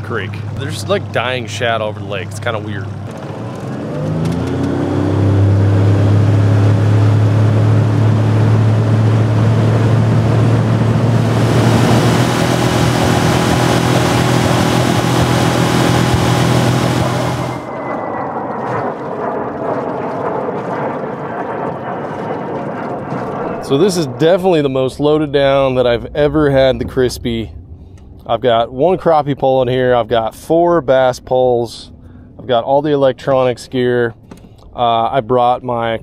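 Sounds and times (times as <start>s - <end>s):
water washing: 0.0s - 17.7s
wake and spray rushing: 0.0s - 17.8s
outboard motor hum: 0.0s - 30.6s
wind: 0.0s - 36.0s.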